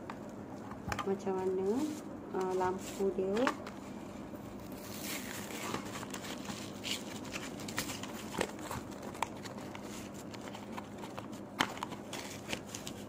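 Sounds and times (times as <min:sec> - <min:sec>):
blister pack crinkling: 0:04.7 - 0:13.0.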